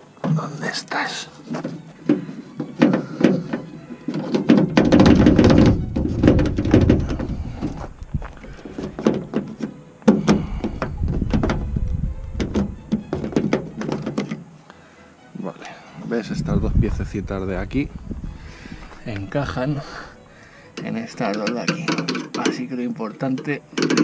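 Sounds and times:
plastic parts clicking and knocking: 0:01.5 - 0:11.7, 0:12.3 - 0:14.5, 0:20.7 - 0:22.7, 0:23.3 - 0:24.0.

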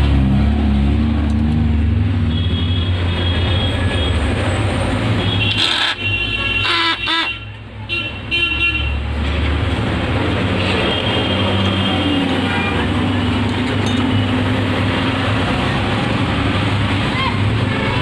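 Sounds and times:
road traffic: 0:00.0 - 0:18.0
vehicle horn toots: 0:05.2 - 0:09.0.

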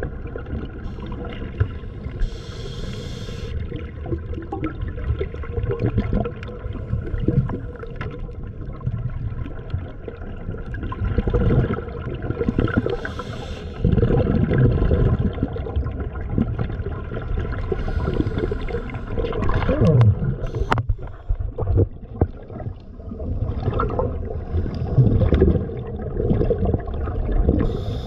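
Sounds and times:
water gurgling and sloshing: 0:00.0 - 0:28.0.

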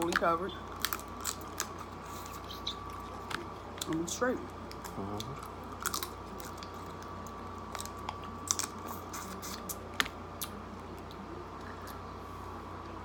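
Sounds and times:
shellfish shells cracking: 0:00.0 - 0:01.9, 0:04.6 - 0:08.8
faint hum: 0:00.0 - 0:13.0
chewing: 0:00.1 - 0:12.0.

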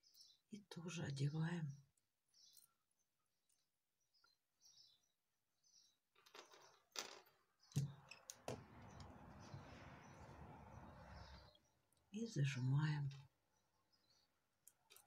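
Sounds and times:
small metal clicks and rustles: 0:06.1 - 0:08.6, 0:14.6 - 0:15.0.

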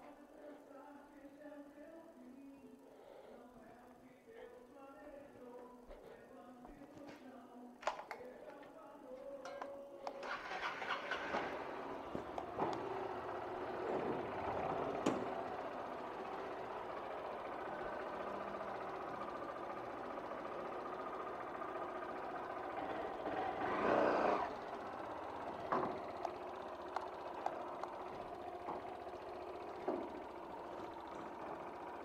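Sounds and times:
motorcycle engine idling: 0:07.9 - 0:32.0.

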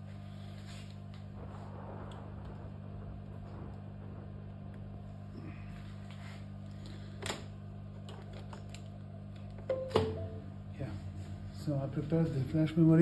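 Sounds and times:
low hum: 0:00.0 - 0:08.1, 0:08.7 - 0:12.6.

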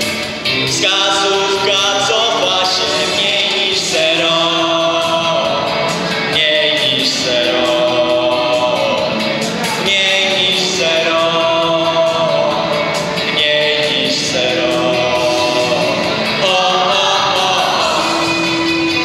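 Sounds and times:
rock band playing: 0:00.0 - 0:19.0
person singing long held notes: 0:00.6 - 0:19.0.

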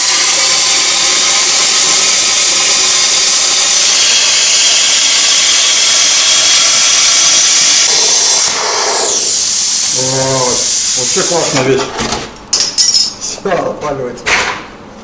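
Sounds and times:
plasma cutter hissing: 0:00.0 - 0:11.7.

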